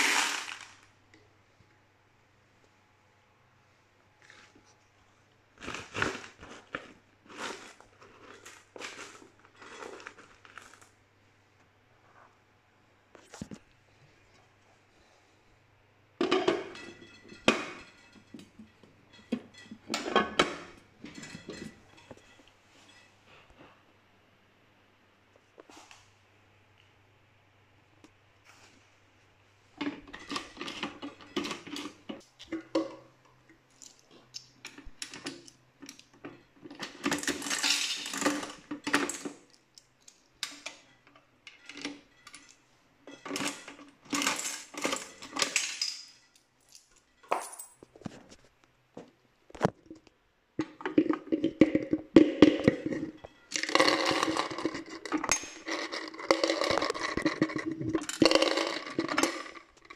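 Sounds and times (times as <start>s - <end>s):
coins clinking: 36.3s - 39.3s, 43.3s - 47.9s, 52.8s - 59.9s.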